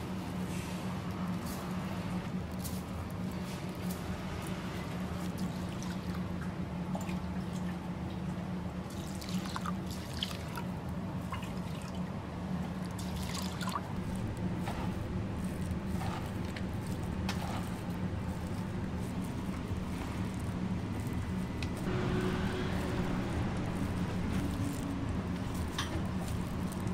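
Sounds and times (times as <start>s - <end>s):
water pouring and dripping: 12.9s - 26.9s
steady low hum: 13.7s - 26.9s.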